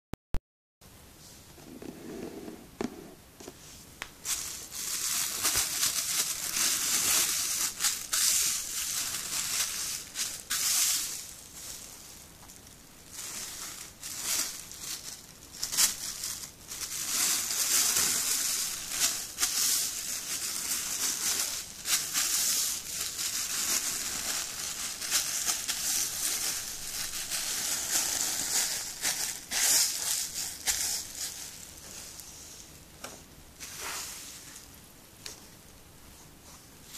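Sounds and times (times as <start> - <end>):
plastic bag crinkling: 4.2 - 32.8.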